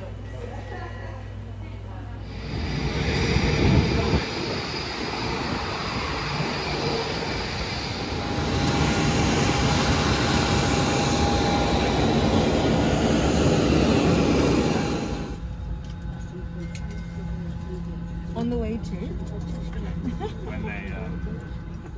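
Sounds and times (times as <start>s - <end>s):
jet airliner roar: 2.2s - 15.7s.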